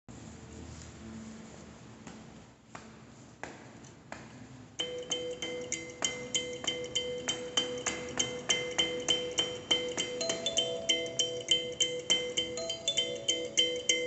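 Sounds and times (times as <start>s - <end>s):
kalimba notes plucked: 4.8s - 14.0s.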